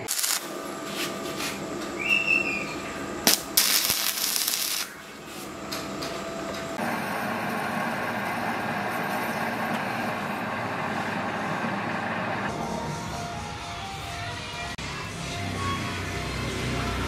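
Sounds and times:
arc welding crackling: 0.0 - 1.8, 3.2 - 5.2
metal lathe running: 5.5 - 12.5.

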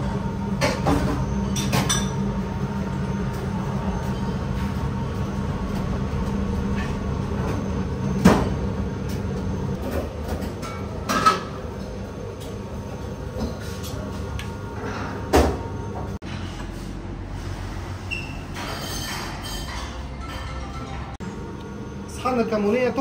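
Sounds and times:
dishes and utensils knocking: 9.8 - 11.6.

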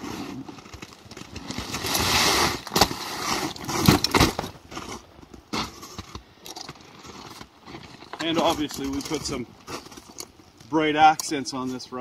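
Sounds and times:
raft fabric rustling and scraping: 0.0 - 6.2.

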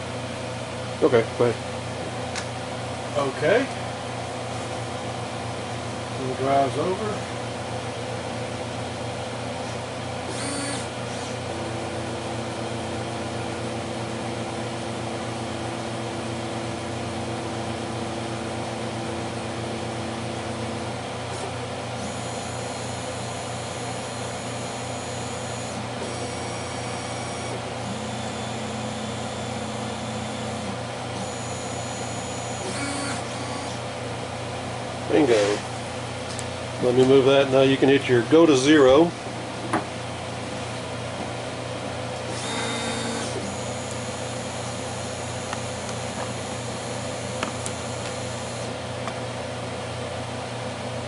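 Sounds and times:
fan-like hum: 0.0 - 51.0
stepper motors whining: 10.3 - 11.4, 21.3 - 33.8, 42.3 - 48.8.

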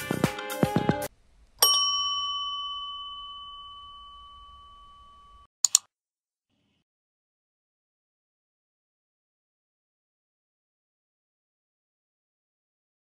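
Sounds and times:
background music: 0.0 - 1.1
bell ding: 1.6 - 5.5
mouse clicks: 5.6 - 5.9.

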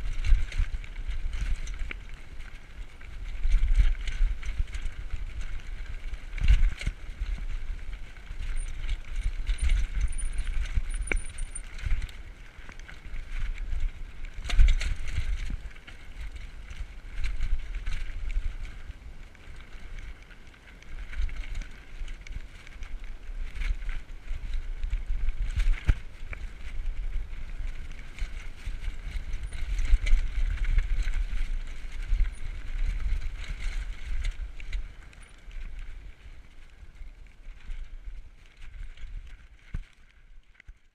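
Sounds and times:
wind buffeting microphone: 0.0 - 39.8
bike rattling: 0.0 - 40.9.

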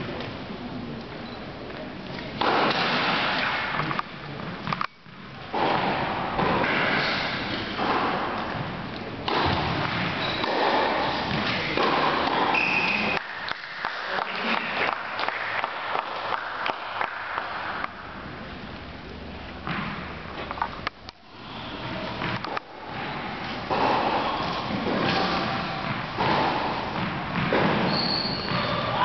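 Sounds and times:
tennis ball sharp knocks: 9.2 - 12.5.

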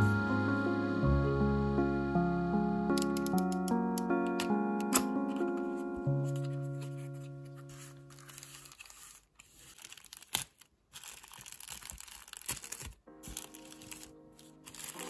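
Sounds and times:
soft lofi background music: 0.0 - 8.9, 11.8 - 15.0
plastic bag crinkling and tearing: 6.2 - 15.0.

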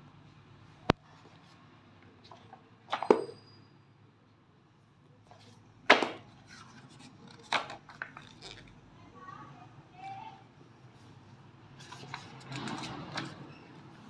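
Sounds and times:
pages rustling: 5.4 - 8.7, 11.8 - 13.4
book slapping on tiled floor: 5.9 - 6.3.

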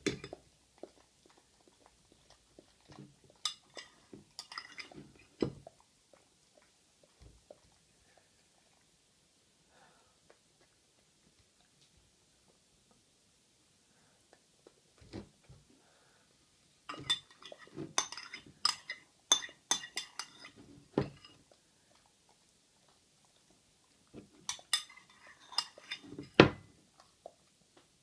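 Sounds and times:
metal spoon clinking on ceramic bowl: 3.4 - 5.0, 16.9 - 20.6, 24.5 - 26.0.

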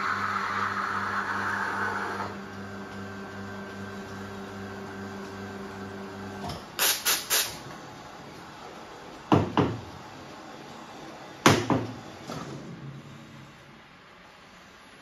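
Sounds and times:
espresso machine humming: 0.0 - 6.4
steam blasts from steam wand: 6.8 - 7.6.

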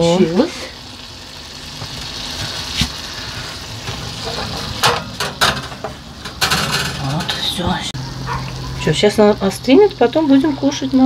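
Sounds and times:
metal baking tray clanking: 3.8 - 7.9.

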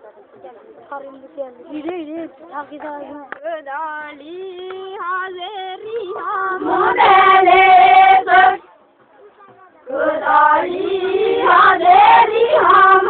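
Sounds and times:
women singing together: 1.7 - 8.6, 9.9 - 13.0.

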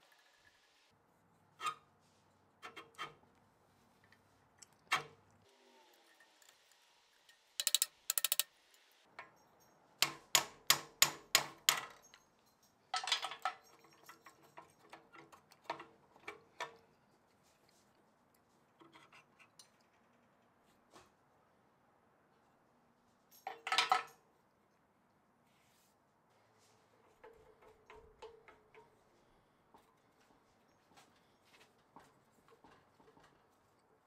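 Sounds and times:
metal parts clicking and knocking: 7.6 - 8.5.

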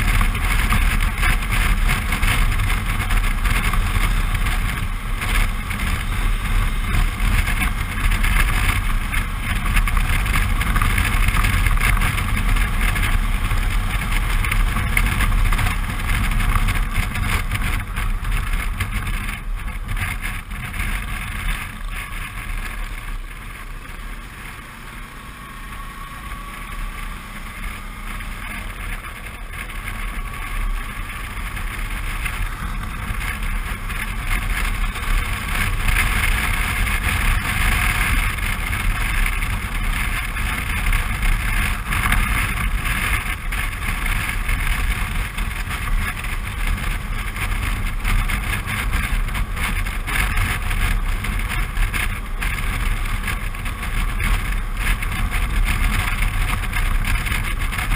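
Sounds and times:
wind rushing over microphone: 0.0 - 25.6, 26.3 - 57.9
motorcycle engine running: 0.0 - 57.9.

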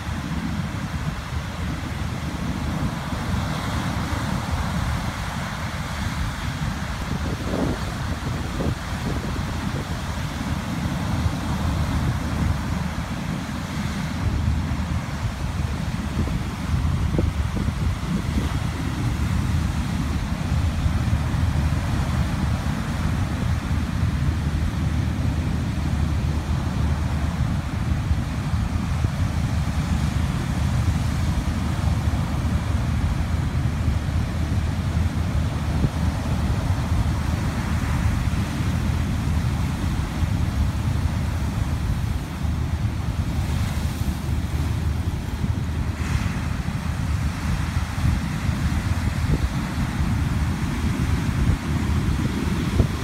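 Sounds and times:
storm surf breaking: 0.0 - 53.0
wind rumble on microphone: 0.0 - 53.0.

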